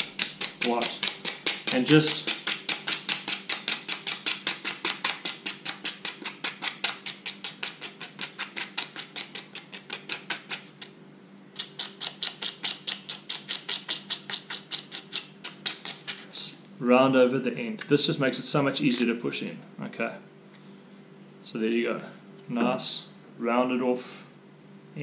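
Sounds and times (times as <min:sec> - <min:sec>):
sandpaper rubbing: 0:00.0 - 0:10.9, 0:11.6 - 0:16.3.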